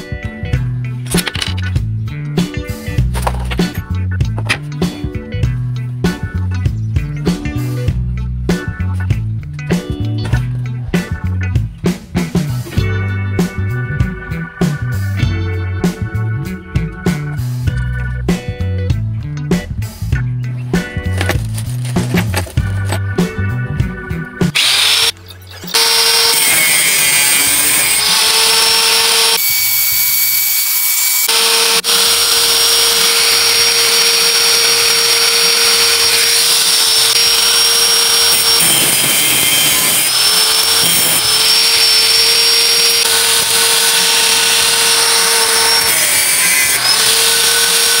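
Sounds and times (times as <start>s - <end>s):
electric angle grinder running: 24.6s - 25.1s, 25.7s - 48.0s.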